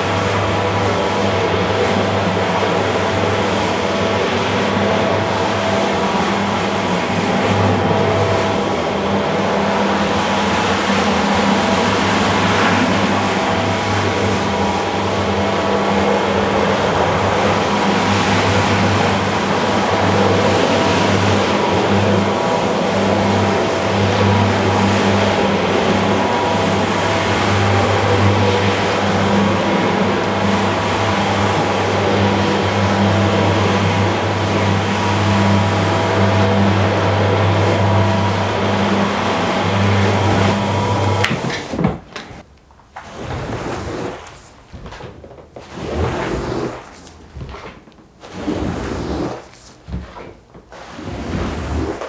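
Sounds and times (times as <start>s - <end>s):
floor scrubber motor hum: 0.0s - 42.4s, 43.0s - 52.0s
brush scrubbing through foam: 43.0s - 52.0s.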